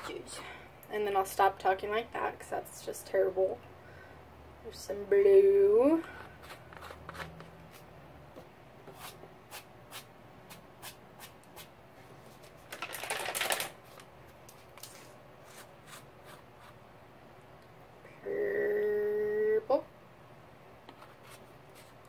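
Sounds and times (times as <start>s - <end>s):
plastic rustle: 12.4s - 15.2s.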